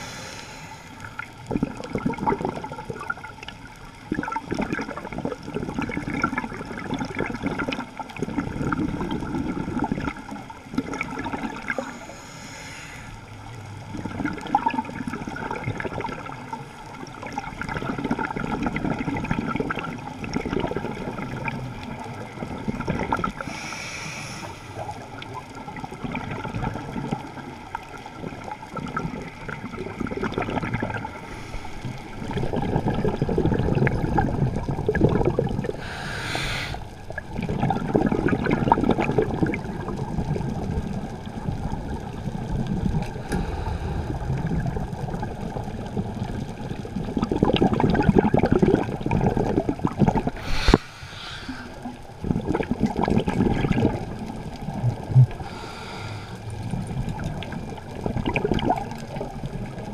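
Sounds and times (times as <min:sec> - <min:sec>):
regulator inhalation hiss: 0:00.0 - 0:01.2, 0:11.8 - 0:13.2, 0:23.4 - 0:24.8, 0:35.8 - 0:37.0, 0:50.4 - 0:51.9, 0:55.4 - 0:56.4
gurgling exhaled bubbles: 0:01.0 - 0:12.0, 0:13.4 - 0:59.9.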